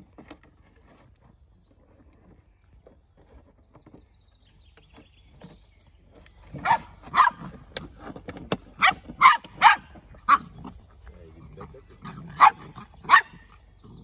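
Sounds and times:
puppies yapping: 6.4 - 14.0.

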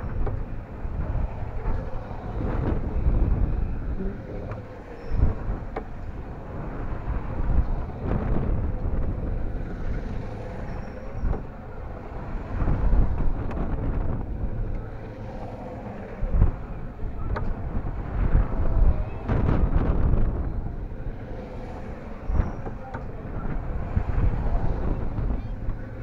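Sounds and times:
wind buffeting microphone: 0.0 - 26.0.

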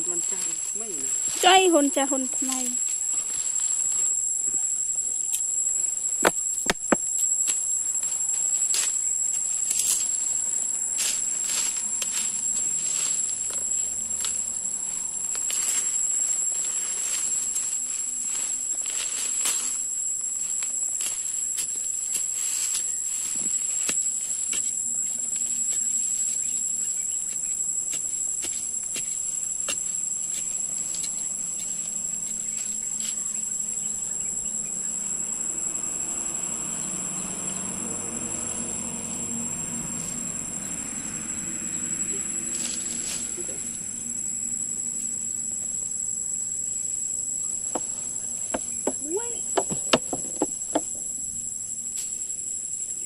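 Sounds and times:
stick scraping forest soil: 0.0 - 33.8, 42.0 - 44.0
sharp knocks: 6.2 - 7.1, 47.7 - 51.0.

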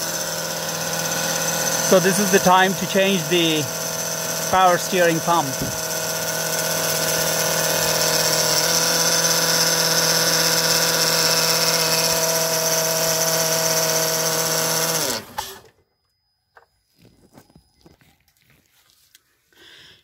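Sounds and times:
car engine idling: 0.0 - 13.1
power steering pump whine: 0.0 - 19.3.

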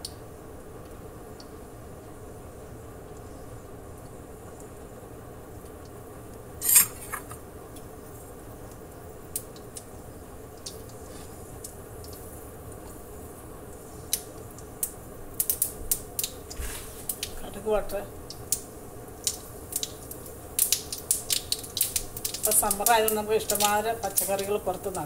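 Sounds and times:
faint steady hum: 0.0 - 25.0
seeds popping in hot oil: 8.6 - 25.0.

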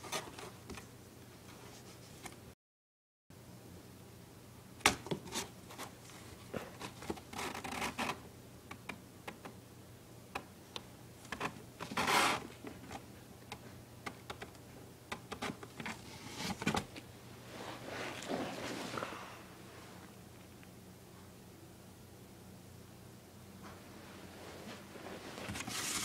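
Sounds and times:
claws scratching on cardboard: 11.4 - 12.4.

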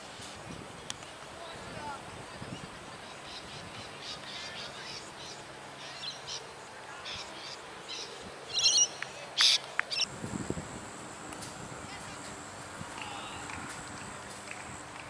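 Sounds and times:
birds chirping: 2.4 - 10.1.

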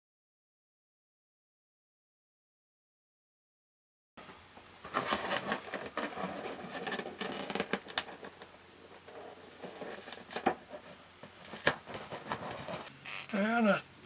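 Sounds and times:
rubbery balloon rustling: 4.2 - 13.2.

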